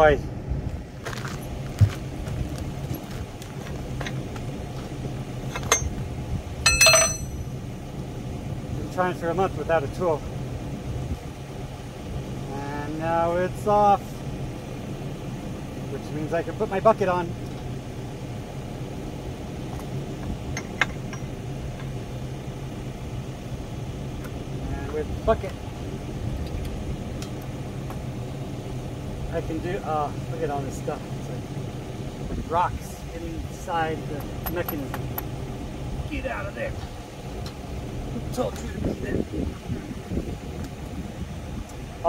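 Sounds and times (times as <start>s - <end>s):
metal striking metal clink: 5.5s - 6.0s, 6.6s - 7.5s.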